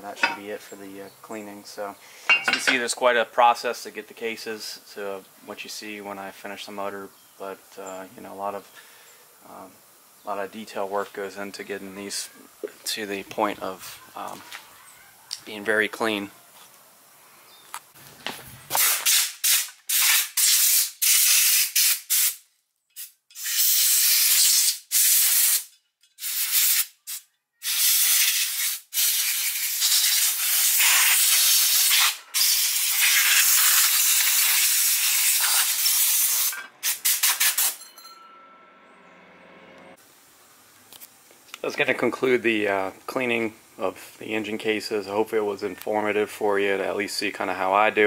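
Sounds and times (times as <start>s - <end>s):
compressed air blow gun hissing: 2.0s - 2.6s, 18.7s - 22.4s, 23.0s - 37.8s.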